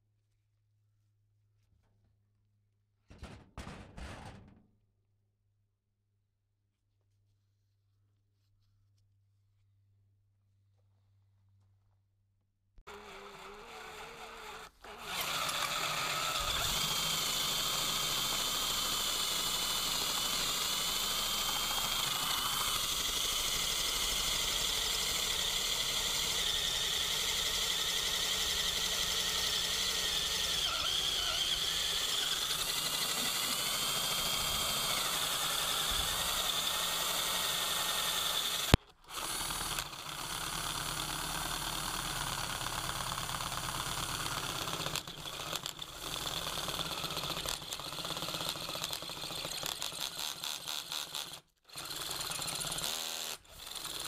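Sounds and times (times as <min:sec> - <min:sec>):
power drill cutting into steel: 0:12.9 - 0:54.0.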